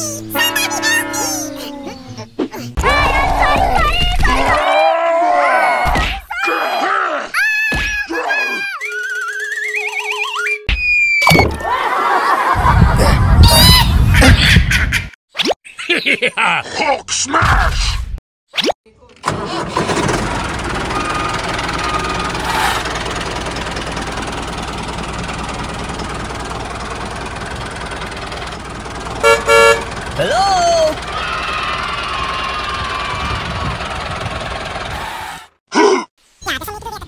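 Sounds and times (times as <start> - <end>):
children shouting and cheering: 2.8 - 8.9, 20.9 - 22.4, 30.2 - 34.3
tractor engine knocking: 19.3 - 35.0.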